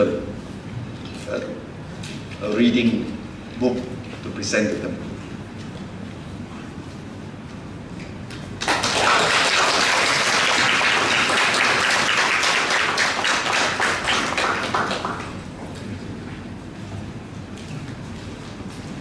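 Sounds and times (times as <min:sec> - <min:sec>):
crowd applauding: 0:08.6 - 0:15.4.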